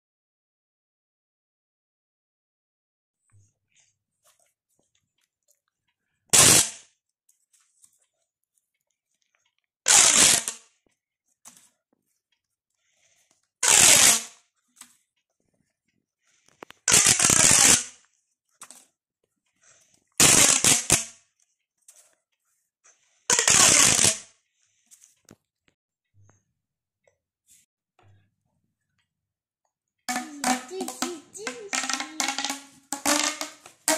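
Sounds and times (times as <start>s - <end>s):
pop tube toys popping clicks: 23.3s - 24.2s, 30.1s - 33.9s.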